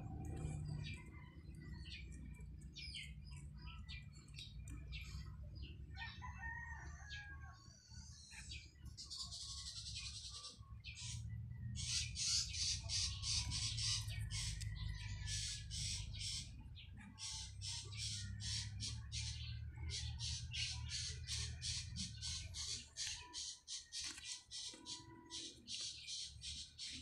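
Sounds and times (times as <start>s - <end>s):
low steady hum: 0.0s - 6.2s
rooster crowing: 5.9s - 7.7s.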